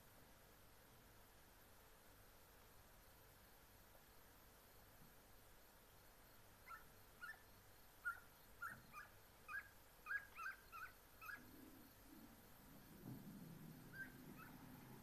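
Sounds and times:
hounds yelping: 6.6s - 11.6s, 13.8s - 15.0s.

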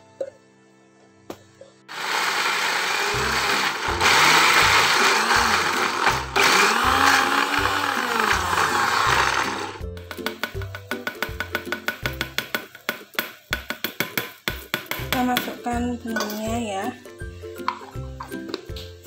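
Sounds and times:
electric blender grinding: 1.9s - 9.8s
background music with low beat: 8.2s - 19.0s.

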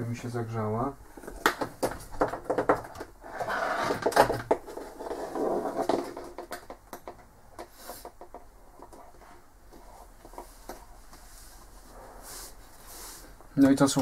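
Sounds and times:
rustling: 7.6s - 14.0s.

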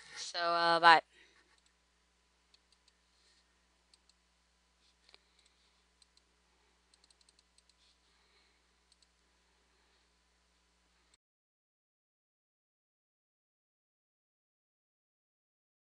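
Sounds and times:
faint steady hum: 0.0s - 11.2s
computer mouse clicks: 1.5s - 1.8s, 2.5s - 3.0s, 3.9s - 4.2s, 5.0s - 6.3s, 6.9s - 8.0s, 8.8s - 9.2s.

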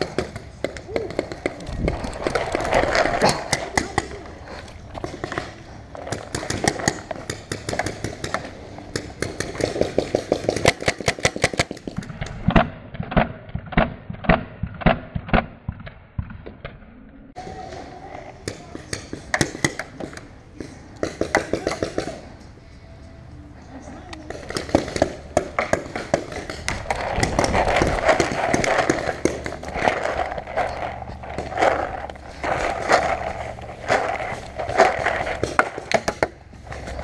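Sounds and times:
paintball markers firing: 5.0s - 16.4s, 18.4s - 22.2s, 24.3s - 37.0s.

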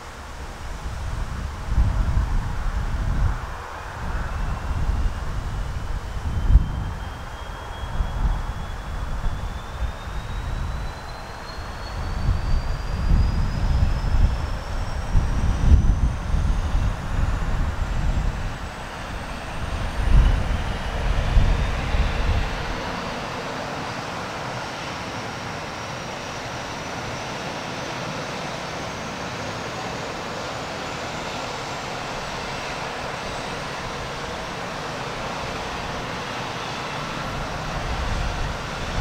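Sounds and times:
turboprop engine hiss and whine: 0.0s - 39.0s
gusty low rumble: 0.3s - 11.0s, 11.7s - 24.0s, 37.0s - 39.0s.

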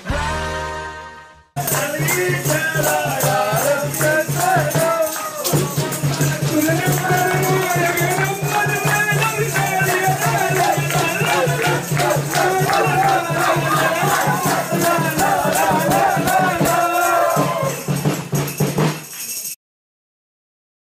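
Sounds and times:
group singing: 0.0s - 18.0s
hand clapping: 1.6s - 19.6s
rattling shaker: 1.6s - 19.6s.

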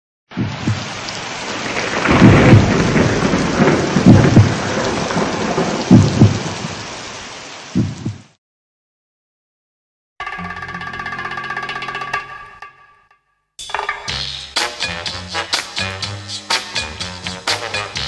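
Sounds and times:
thunder rolling: 0.3s - 6.9s
rain hiss: 0.3s - 8.4s, 13.7s - 18.0s.

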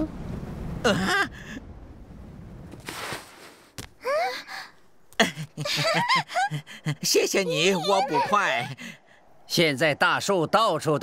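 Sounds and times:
sigh-like cartoon voice: 7.4s - 8.8s.

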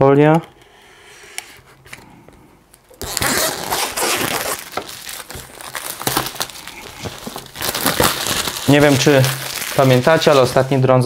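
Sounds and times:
plastic film crinkling: 2.9s - 11.0s
knife slitting plastic film: 3.0s - 10.7s.

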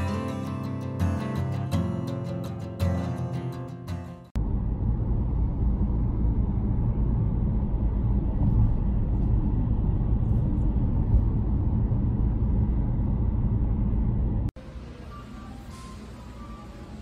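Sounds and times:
car road rumble: 4.4s - 14.6s.

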